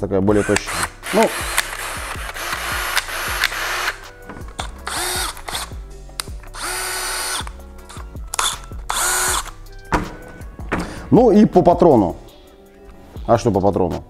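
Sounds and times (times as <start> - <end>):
cordless drill motor whine: 0.4 - 4.0, 4.8 - 5.7, 6.6 - 7.5, 8.4 - 9.5.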